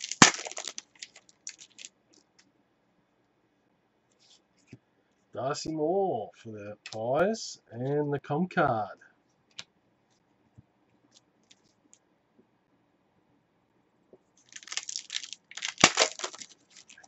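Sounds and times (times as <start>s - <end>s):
foil wrapper tearing and crinkling: 0.0s - 1.9s, 14.4s - 17.0s.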